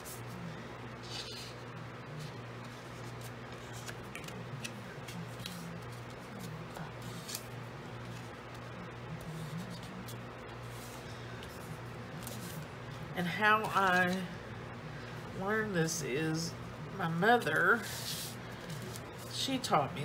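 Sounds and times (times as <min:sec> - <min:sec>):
paper scraping: 0:01.0 - 0:01.6
paper rustling: 0:02.2 - 0:12.7.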